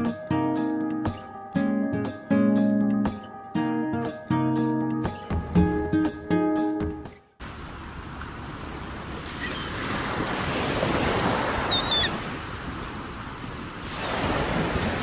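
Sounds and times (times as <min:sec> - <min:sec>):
ocean waves washing: 0:07.4 - 0:15.0.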